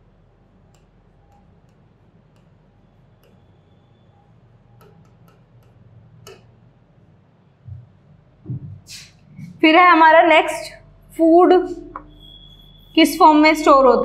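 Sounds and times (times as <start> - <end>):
low steady hum: 0.0 - 14.0
chalk tapping on blackboard: 4.7 - 6.5.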